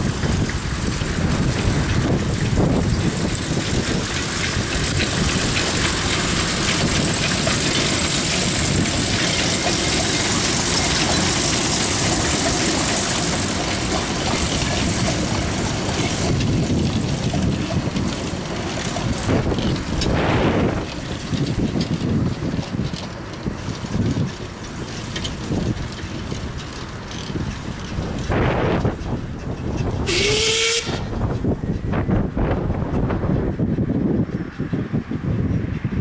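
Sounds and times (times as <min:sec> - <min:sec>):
carriages rolling on rails: 0:00.0 - 0:36.0
steam locomotive passing: 0:00.0 - 0:36.0.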